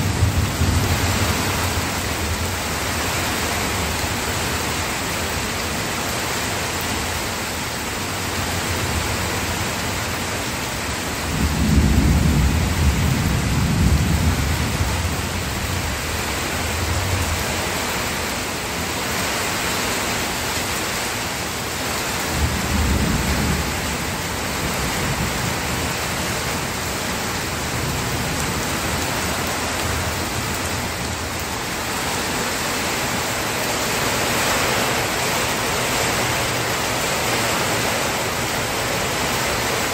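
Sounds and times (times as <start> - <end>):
low rolls of thunder: 0.0 - 2.5, 11.3 - 16.0
steady rain: 0.0 - 39.9.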